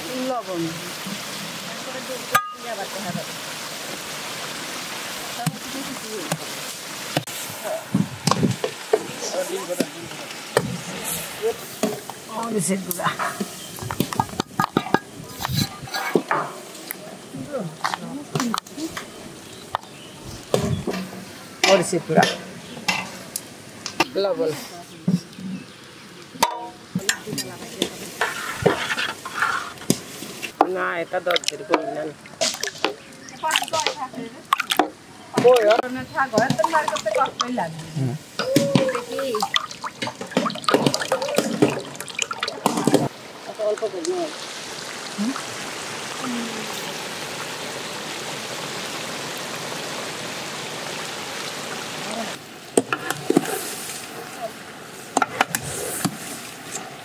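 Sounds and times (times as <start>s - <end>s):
food sizzling in a wok: 0.0s - 23.7s, 26.5s - 30.6s, 44.2s - 56.7s.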